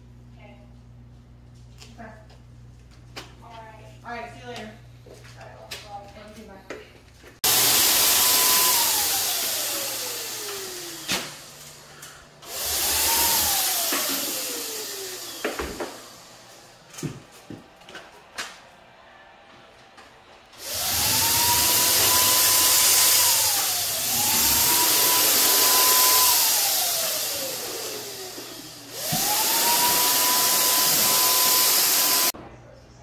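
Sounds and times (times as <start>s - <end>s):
paint sprayer motor whining: 7.4s - 16.6s, 20.6s - 32.4s.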